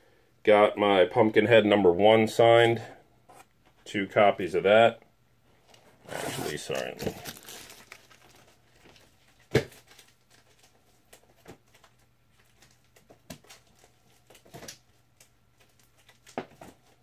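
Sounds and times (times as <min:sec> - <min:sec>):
comic books being handled: 0:05.5 - 0:17.0.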